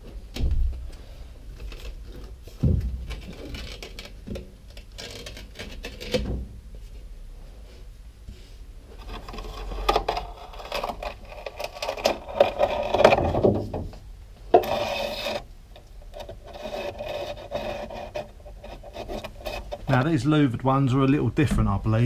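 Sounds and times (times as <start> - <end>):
glass and rubber seal scraping: 1.6 - 6.3, 9.0 - 13.8, 14.5 - 20.0.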